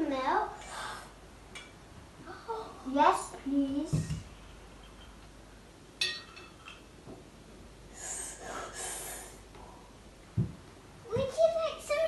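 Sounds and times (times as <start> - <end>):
china clinking: 6.0 - 6.9.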